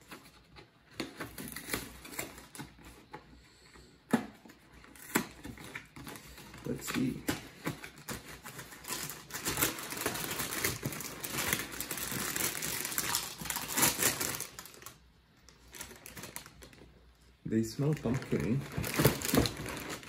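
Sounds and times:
plastic bag crinkling: 8.0 - 16.9, 17.5 - 20.0.

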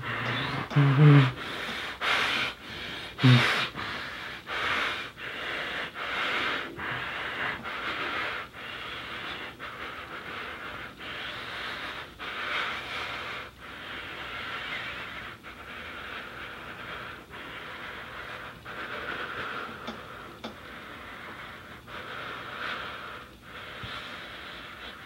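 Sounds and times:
muffled moan: 0.0 - 1.5, 3.2 - 3.7
man breathing hard through gag: 0.0 - 25.0.

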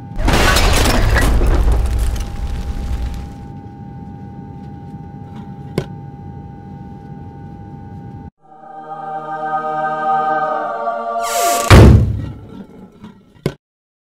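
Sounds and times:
rumbling explosion blast: 0.2 - 3.5, 11.7 - 12.4.

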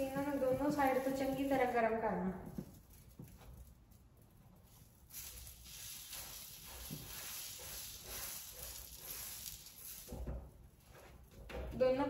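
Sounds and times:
butter sizzling on a griddle: 5.0 - 10.4.

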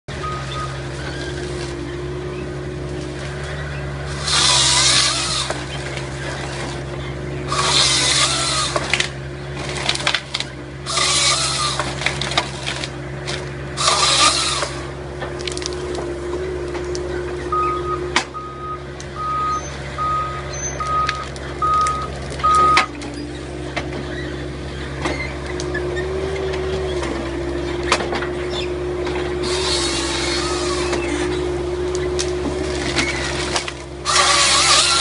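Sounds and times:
excavator engine running: 0.1 - 35.0
chain saw cutting log: 4.1 - 15.0, 29.1 - 31.4, 32.2 - 35.0.

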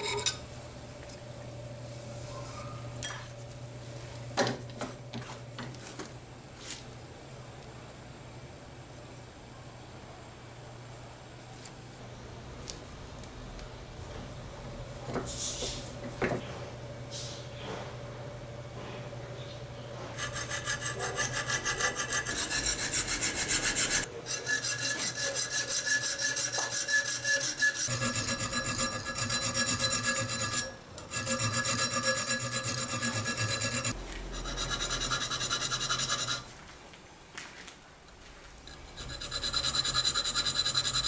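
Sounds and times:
file rasping on steel blade: 20.2 - 36.5, 38.7 - 41.0.

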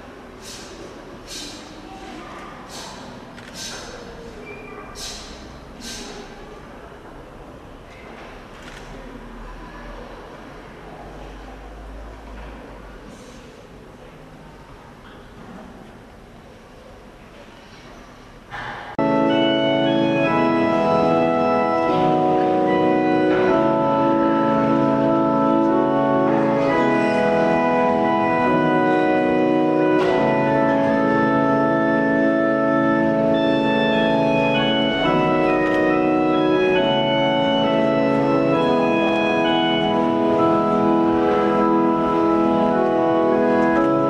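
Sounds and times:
organ playing sustained chords: 19.0 - 44.0.

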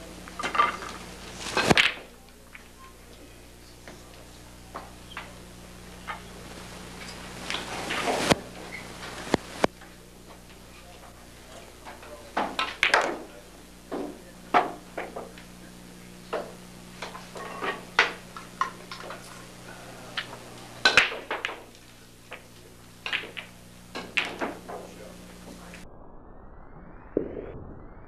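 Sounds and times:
pool balls clacking: 0.0 - 3.0, 3.8 - 25.8
low electrical hum: 0.0 - 25.9.

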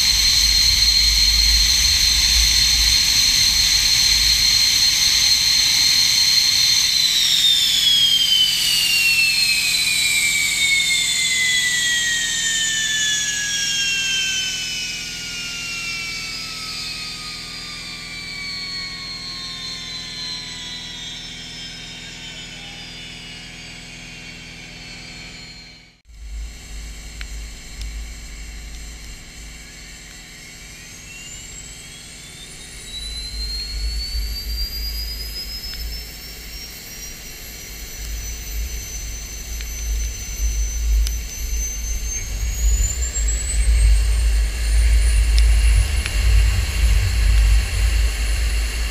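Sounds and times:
low rumble: 0.0 - 5.3, 26.1 - 48.9
jet engine whine winding down: 0.0 - 48.9.

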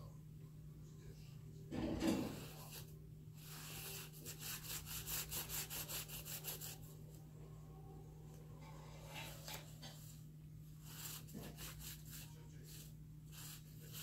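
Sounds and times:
paintbrush scrubbing on paper: 2.0 - 6.9, 9.0 - 14.0.

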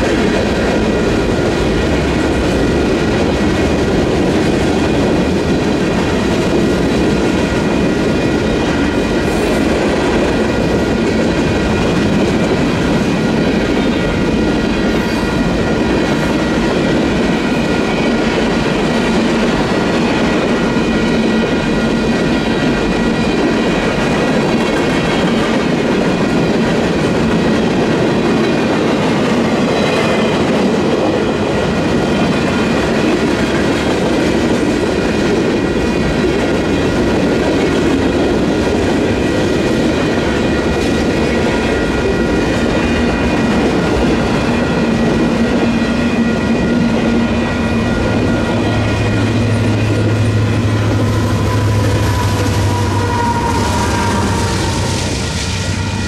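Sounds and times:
crossing bells ringing: 40.1 - 56.0.

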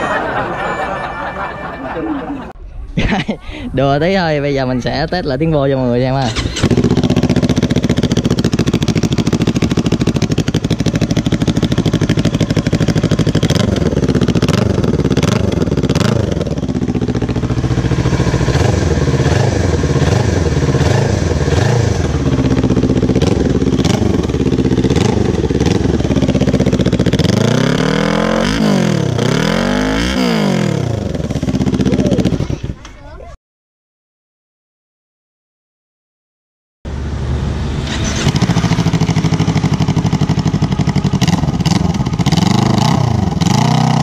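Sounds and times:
motorcycle engine revving: 6.0 - 32.8, 36.9 - 44.0.

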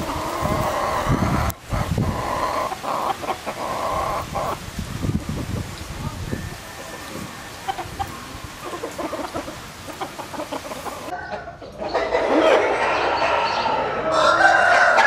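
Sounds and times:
chickens clucking: 0.0 - 15.0.

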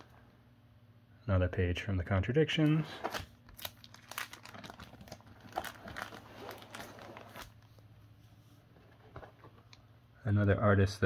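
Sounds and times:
plastic sleeve pages crinkling: 3.0 - 7.8.

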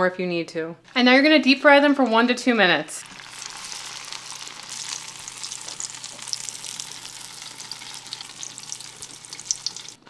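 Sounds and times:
food deep-frying in hot oil: 3.0 - 10.0.

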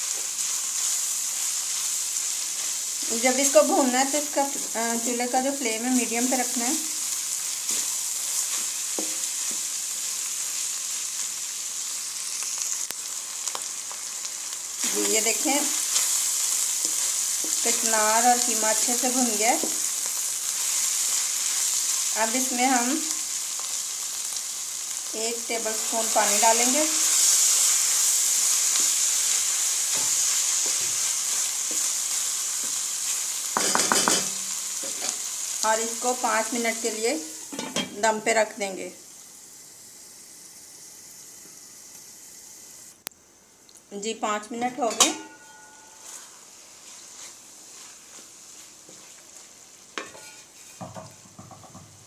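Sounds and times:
meat sizzling in hot oil: 0.0 - 43.0, 44.3 - 52.0
spatula knocking against pan: 33.6 - 34.4
spatula scraping pan: 50.0 - 51.1.

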